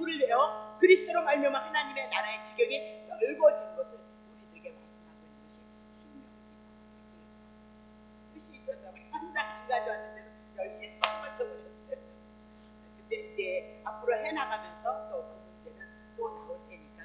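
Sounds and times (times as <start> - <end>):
person speaking: 0.0 - 6.3, 8.4 - 17.0
electrical mains hum: 0.0 - 17.0
sharp click: 11.0 - 11.3.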